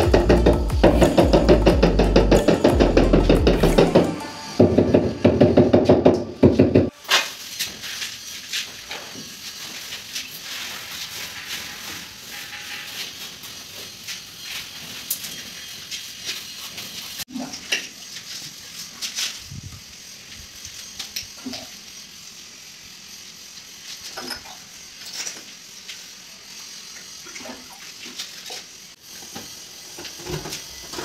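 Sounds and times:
steady hiss: 6.9 - 31.0.

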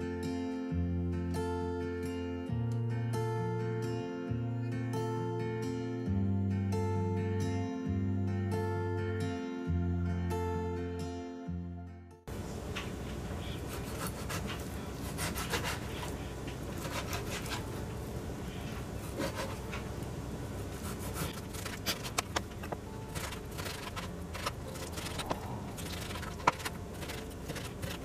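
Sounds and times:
knife sawing through meat: 13.6 - 16.1, 16.8 - 17.6.

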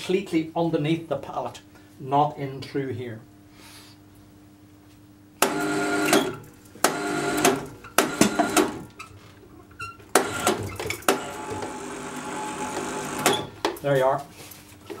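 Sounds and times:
hoist motor whining: 10.2 - 13.6.

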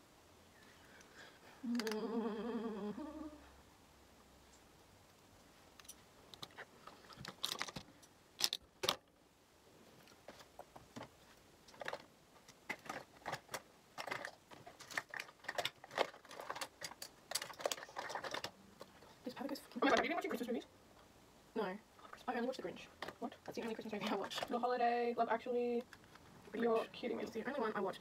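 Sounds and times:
makeup cases clicking and clattering: 7.3 - 9.1, 11.7 - 19.0, 23.0 - 24.6.

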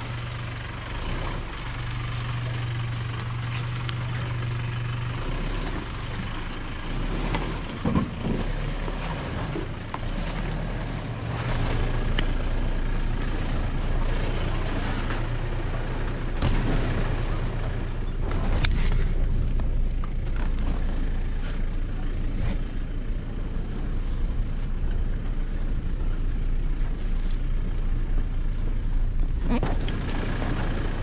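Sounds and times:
engine running low: 0.0 - 31.0.

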